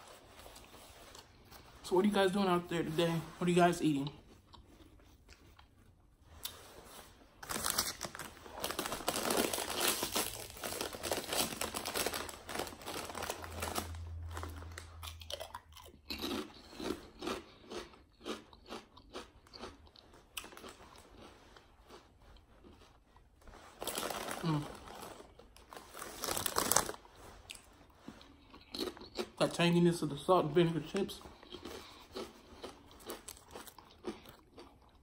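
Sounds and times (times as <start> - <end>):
crunching potato chips: 7.4 - 22.9, 23.7 - 35.0.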